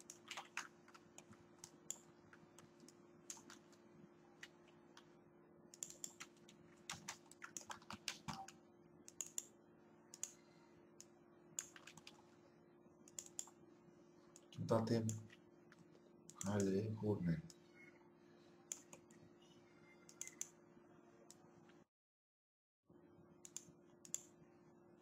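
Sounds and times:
steady low hum: 0.0s - 21.8s
mouse clicks: 5.7s - 6.3s, 6.9s - 9.5s, 10.1s - 10.4s, 13.1s - 13.6s, 18.7s - 19.2s, 20.0s - 20.6s, 23.4s - 24.3s
keyboard keystrokes: 5.8s - 9.5s.

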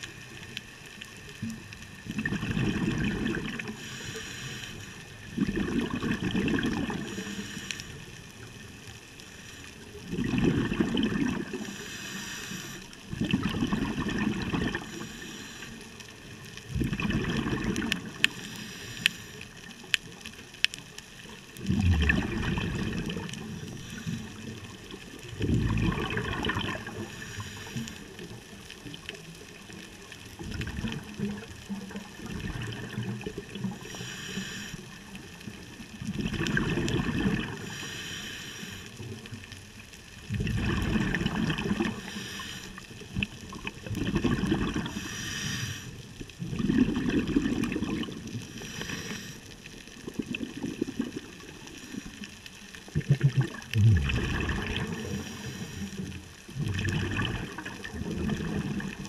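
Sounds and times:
exhaust bubbling underwater: 1.4s - 4.1s, 5.2s - 7.3s, 10.0s - 11.9s, 13.0s - 15.1s, 16.4s - 18.5s, 21.5s - 27.4s, 29.8s - 34.0s, 34.8s - 37.7s, 40.2s - 45.2s, 46.0s - 49.3s, 49.9s - 52.0s, 52.8s - 59.0s
regulator hissing on inhale: 3.6s - 5.3s, 7.0s - 8.2s, 9.2s - 10.0s, 11.5s - 13.1s, 14.7s - 16.3s, 18.2s - 19.7s, 23.6s - 25.0s, 26.9s - 28.3s, 33.6s - 35.2s, 37.6s - 39.1s, 41.9s - 43.0s, 44.8s - 46.2s, 48.3s - 49.7s, 51.4s - 52.3s, 55.0s - 56.4s.

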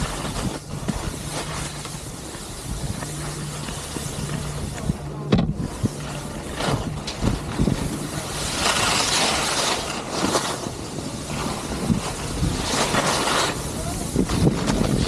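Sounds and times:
skis scraping on snow: 0.0s - 15.0s
wind buffeting microphone: 0.0s - 15.0s.

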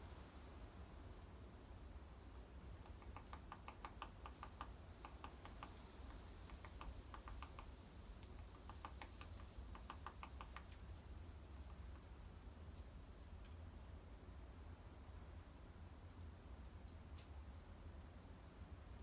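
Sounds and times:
bird pecking at feeder: 2.7s - 10.9s.

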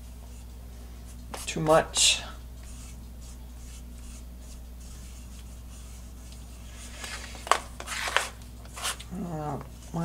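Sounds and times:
cotton rubbing plastic fan hub: 2.6s - 10.0s.

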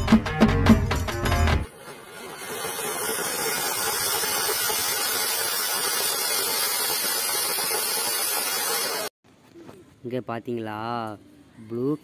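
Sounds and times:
firework fountain hissing: 1.7s - 9.1s.

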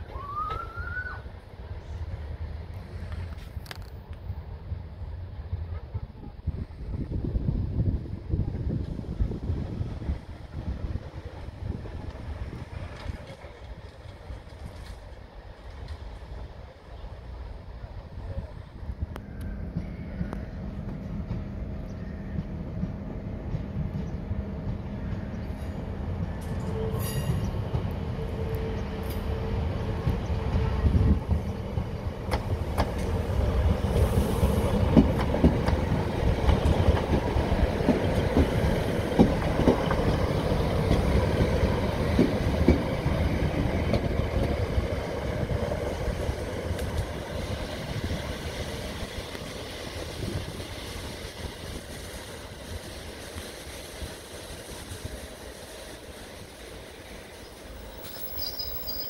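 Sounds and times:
diesel train engines rumbling: 0.0s - 59.0s
wheels clicking over rail joints: 34.8s - 44.7s.

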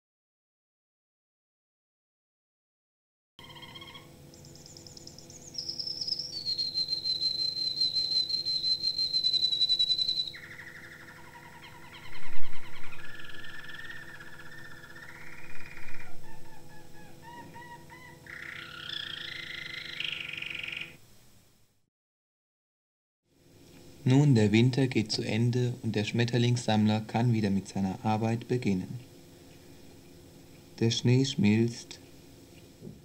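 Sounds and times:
bird trilling and chirping: 3.4s - 21.0s
low mains hum: 3.4s - 21.9s, 23.3s - 33.0s.

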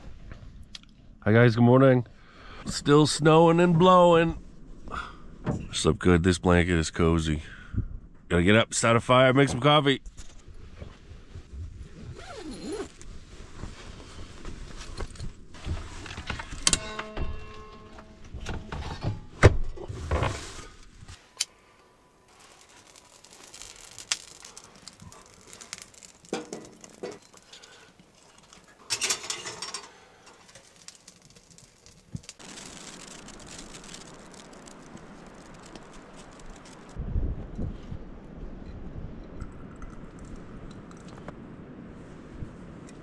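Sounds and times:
steady hiss: 20.4s - 37.0s.

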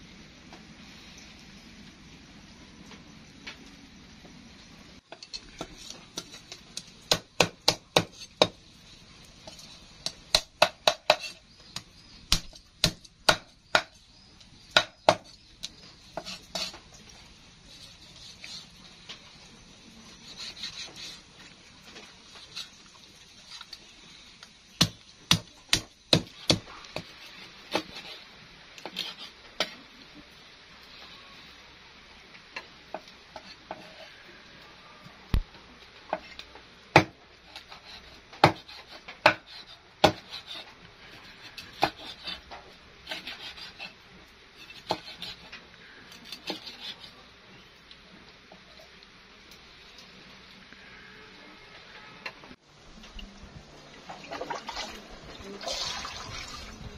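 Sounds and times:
cleaver chopping on wooden board: 24.8s - 27.1s, 40.0s - 40.4s.

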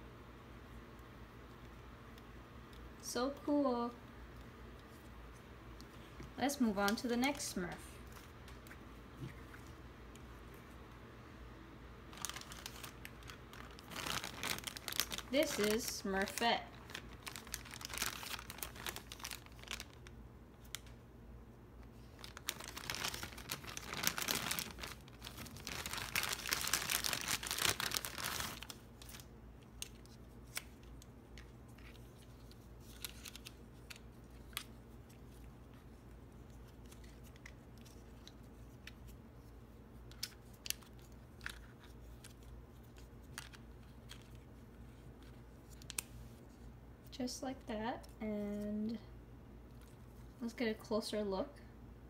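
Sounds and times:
plastic bag crinkling and tearing: 12.1s - 20.9s, 21.9s - 46.2s.

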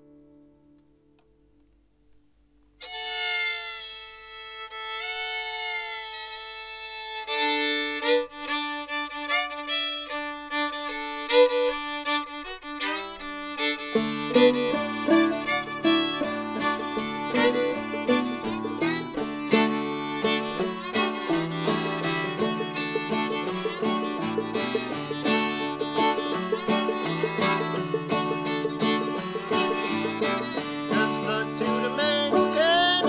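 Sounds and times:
fiddle playing a tune: 2.8s - 33.0s
plucked guitar bass notes: 13.9s - 33.0s.

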